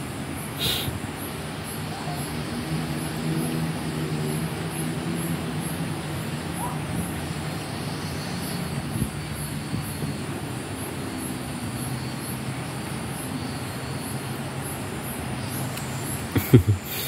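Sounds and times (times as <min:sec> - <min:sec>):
low engine drone: 0:00.0 - 0:11.9.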